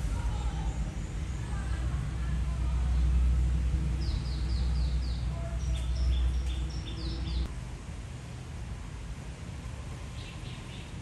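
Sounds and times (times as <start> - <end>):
birds chirping: 0.0 - 7.5
low steady rumble: 0.0 - 11.0.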